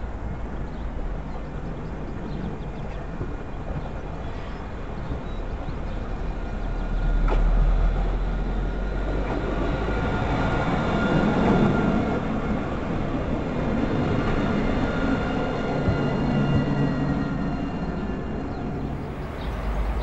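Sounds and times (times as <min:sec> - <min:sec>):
tram wheels rumbling on rail: 0:00.0 - 0:20.0
tram whine: 0:00.0 - 0:20.0.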